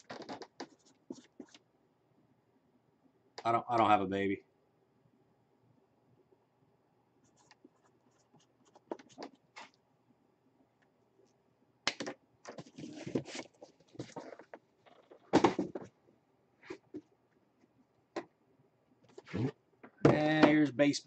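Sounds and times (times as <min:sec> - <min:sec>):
cardboard rustling and scraping: 0:12.5 - 0:15.9.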